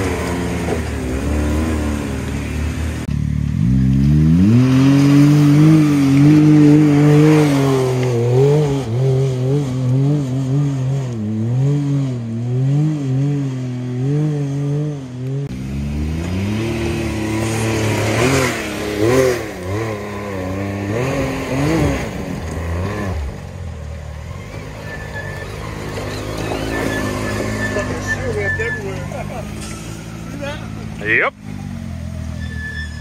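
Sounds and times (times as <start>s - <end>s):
off-road vehicle engines revving: 0.0s - 33.0s.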